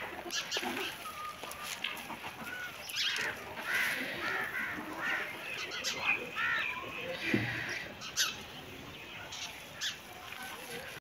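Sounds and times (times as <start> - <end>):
hens squawking: 0.0 - 8.4.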